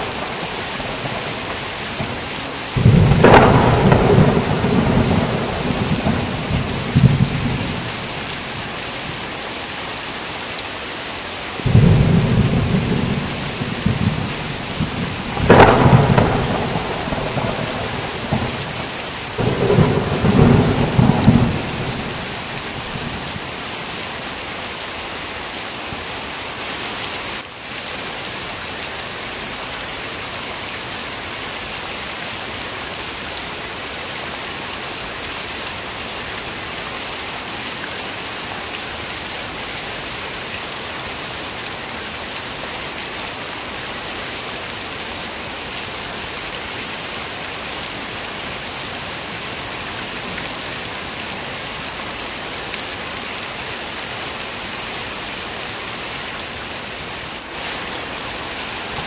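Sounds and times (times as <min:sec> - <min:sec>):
thunder rumbling: 0:00.0 - 0:08.6, 0:11.6 - 0:23.6
heavy rain: 0:00.0 - 0:59.0.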